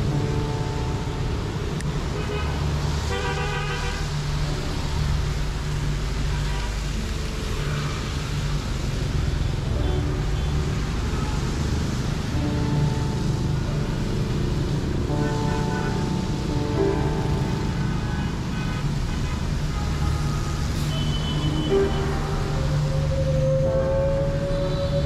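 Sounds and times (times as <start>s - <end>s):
traffic engines droning: 0.0s - 25.0s.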